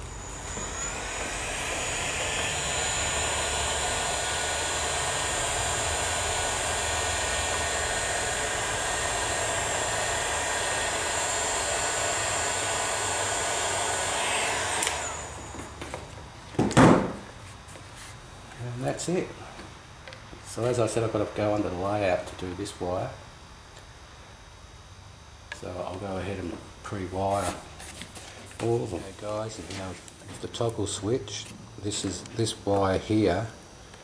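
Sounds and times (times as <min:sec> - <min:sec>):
heat gun blowing whine: 0:00.0 - 0:17.8
loud knock: 0:16.6 - 0:17.2.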